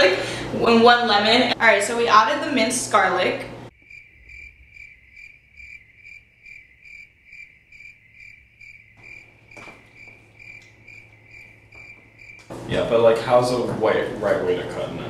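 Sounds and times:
cricket chirping: 0:03.7 - 0:12.6.

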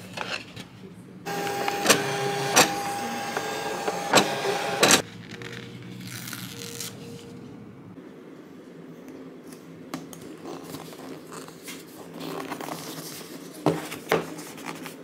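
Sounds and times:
cutting machine motor whine: 0:01.3 - 0:05.0
paper sheet handling: 0:01.3 - 0:07.2.

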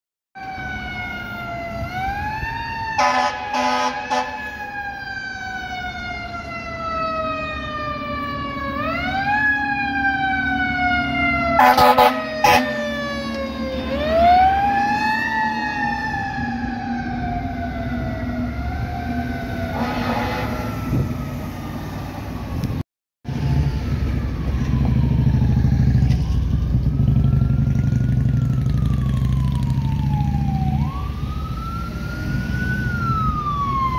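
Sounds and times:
faint distant siren: 0:00.4 - 0:33.9
fire engine siren: 0:00.4 - 0:33.9
traffic rumble: 0:00.4 - 0:33.9
air horn blasts: 0:03.0 - 0:04.6, 0:11.6 - 0:12.8, 0:19.7 - 0:21.1.

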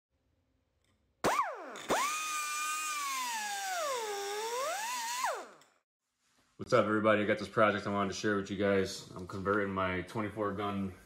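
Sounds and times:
high-pitched power tool whine: 0:01.2 - 0:05.8.

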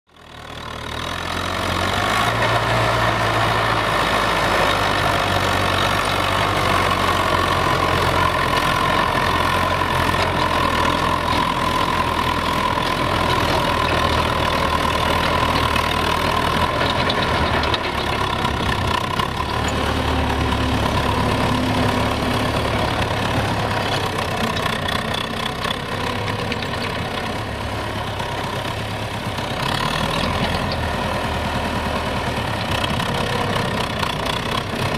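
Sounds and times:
tractor diesel engine under load: 0:00.1 - 0:34.9.

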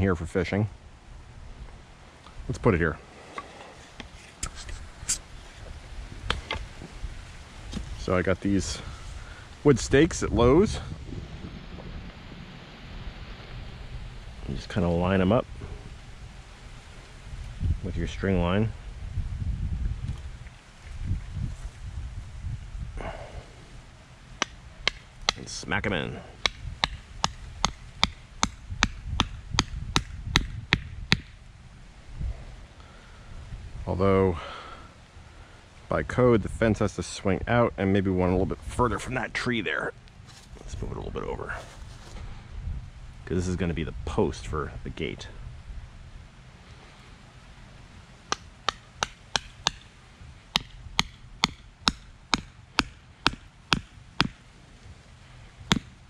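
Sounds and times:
sledgehammer striking wooden stake: 0:26.4 - 0:31.3, 0:48.3 - 0:49.9, 0:50.5 - 0:54.4, 0:55.7 - 0:55.9.

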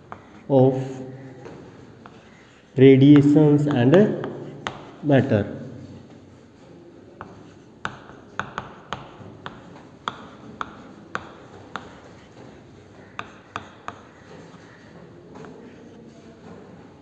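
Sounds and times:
chalk tapping on board: 0:00.0 - 0:00.5, 0:02.0 - 0:05.0, 0:07.2 - 0:14.8
chalk scratching: 0:02.0 - 0:05.1, 0:07.2 - 0:14.8.

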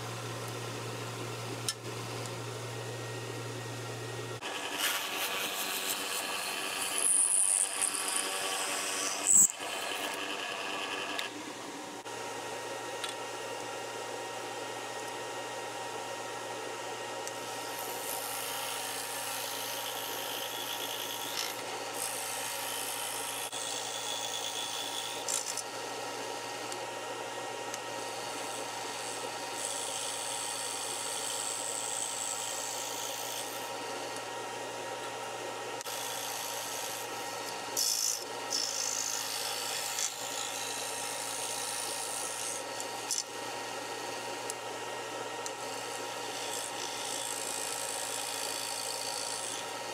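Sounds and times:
scroll saw humming: 0:00.0 - 0:49.9
saw blade rasping through wood: 0:04.4 - 0:11.1.

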